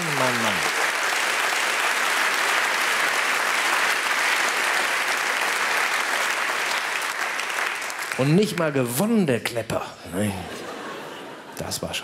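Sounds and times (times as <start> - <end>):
audience applauding: 0.0 - 9.0.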